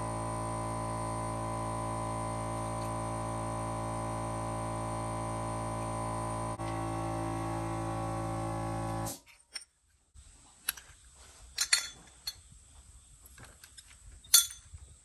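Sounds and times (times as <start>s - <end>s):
small metal parts clinking: 10.6s - 12.6s, 13.3s - 14.8s.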